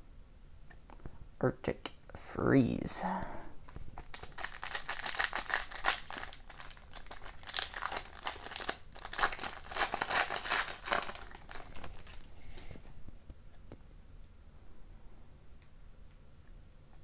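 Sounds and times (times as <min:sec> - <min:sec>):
foil wrapper crinkling and tearing: 0:03.7 - 0:12.3.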